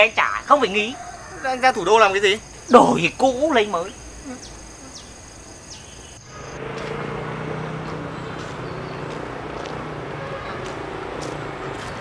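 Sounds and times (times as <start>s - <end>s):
insects chirping: 0.0s - 11.8s
street traffic: 0.0s - 12.0s.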